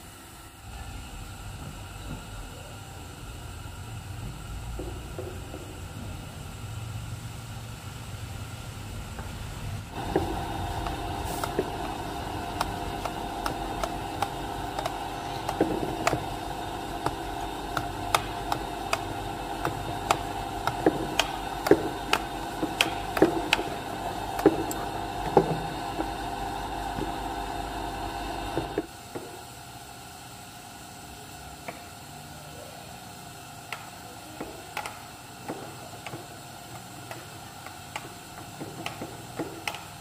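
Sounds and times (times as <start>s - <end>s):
steady mechanical hum: 0.0s - 40.0s
iron clicking and tapping: 9.9s - 26.4s.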